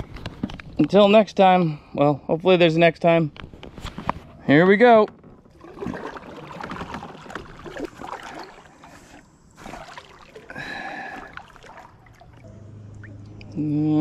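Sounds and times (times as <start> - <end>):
water splashing and dripping: 5.6 - 13.6.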